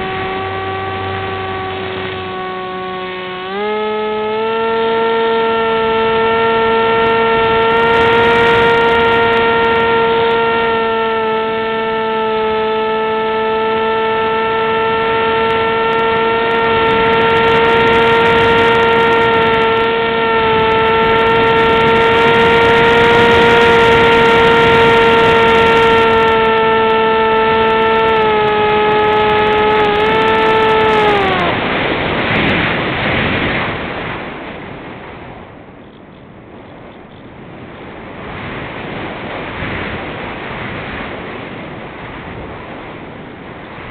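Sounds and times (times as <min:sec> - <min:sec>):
model airplane motor drone: 0:00.0 - 0:34.1
rush of air: 0:14.2 - 0:35.6, 0:37.5 - 0:43.9.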